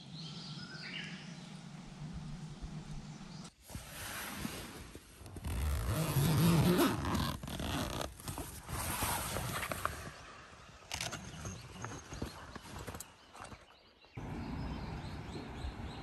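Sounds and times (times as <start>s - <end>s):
zipper being pulled: 5.2s - 10.1s.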